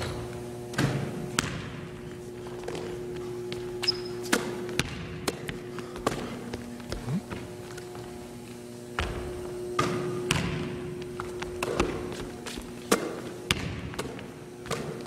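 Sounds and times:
steady low hum: 0.0 - 15.0
shoe squeak: 3.8 - 4.3.

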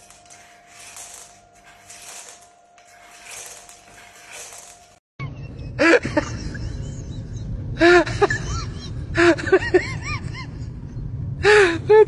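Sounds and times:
low rumble: 6.4 - 12.0.

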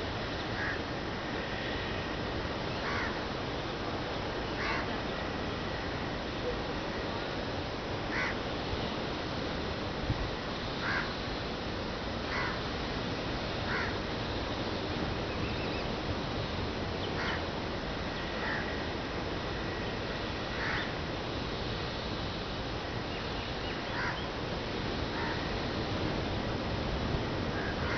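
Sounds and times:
crows cawing: 0.6 - 0.8, 2.8 - 3.2, 4.6 - 4.9, 8.1 - 8.4, 10.8 - 11.2, 12.3 - 12.6, 13.7 - 14.0, 17.2 - 17.4, 18.2 - 18.9, 20.5 - 20.9, 23.9 - 24.3, 25.1 - 25.5, 27.6 - 27.9.

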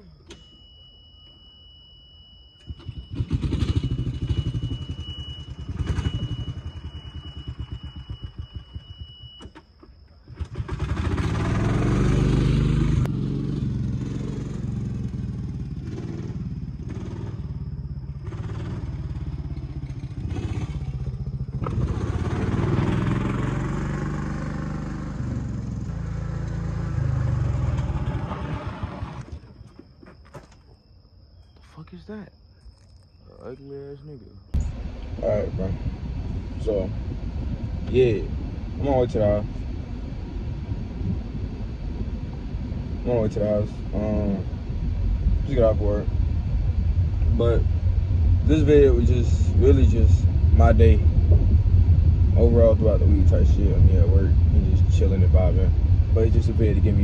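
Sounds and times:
utility cart engine: 2.6 - 9.6, 10.3 - 29.8, 34.6 - 57.0.

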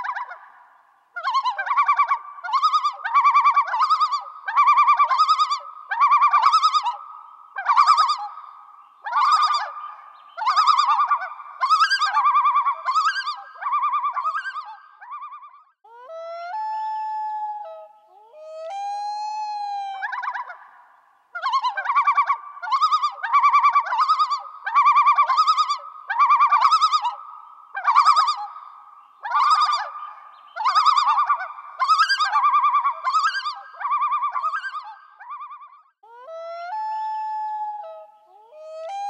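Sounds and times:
animal warbling high-pitched calls: 21.4 - 39.0.

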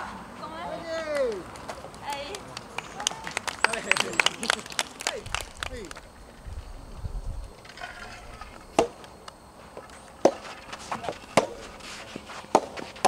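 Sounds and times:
rackets hitting rubber ball: 8.8 - 9.1, 10.2 - 11.7, 12.5 - 13.0.

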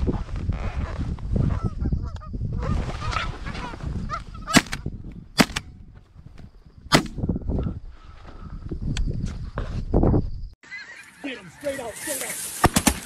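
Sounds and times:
shotgun shots: 4.5 - 4.8, 5.4 - 5.7, 6.9 - 7.2.

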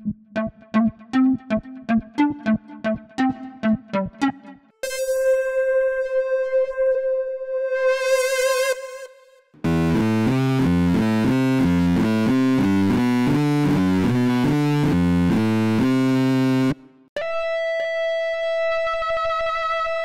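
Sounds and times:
synth lead short low notes: 0.0 - 7.5
overdriven synth long held note: 4.8 - 9.1.

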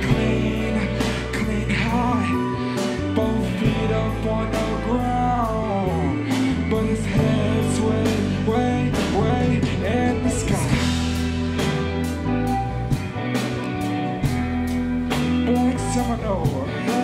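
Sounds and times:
person singing: 0.0 - 11.6, 15.2 - 17.0
deep bass notes: 0.0 - 17.0
electric guitar: 0.0 - 17.0
drums with cymbal hits: 9.0 - 15.6.

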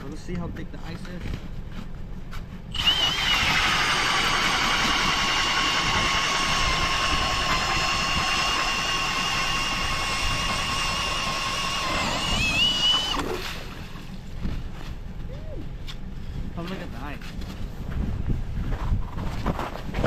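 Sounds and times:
ice auger motor whine: 2.7 - 14.3.

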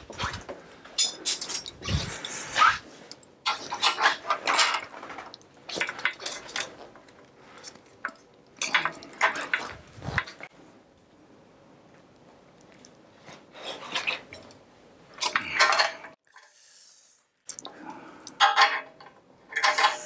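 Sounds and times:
metal tools clinking on bike parts: 0.9 - 2.4, 18.4 - 20.0.

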